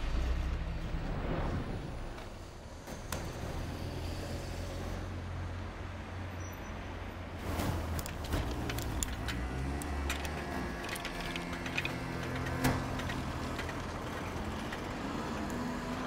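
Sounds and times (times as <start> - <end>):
car engines passing: 6.9 - 16.0.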